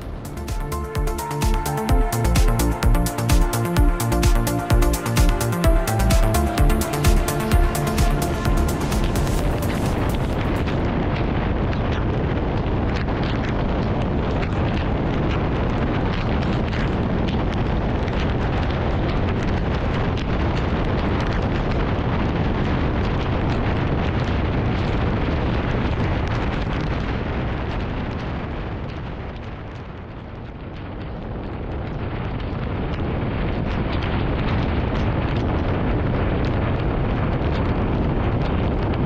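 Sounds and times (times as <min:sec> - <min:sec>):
wind buffeting microphone: 0:08.4 - 0:39.0.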